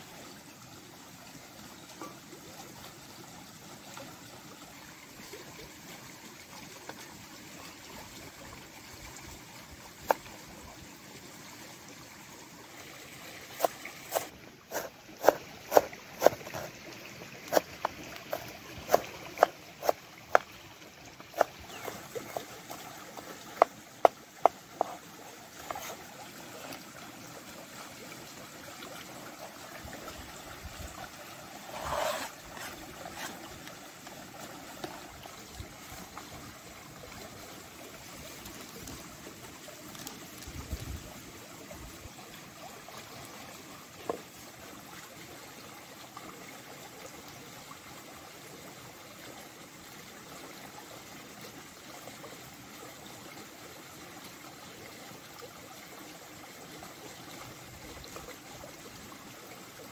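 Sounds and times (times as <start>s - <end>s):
cleaver chopping on wooden board: 13.6s - 16.7s
knife scraping board: 13.6s - 16.7s, 17.5s - 17.7s, 18.3s - 20.4s, 21.4s - 22.5s, 24.8s - 25.0s, 25.6s - 26.0s, 31.6s - 33.4s.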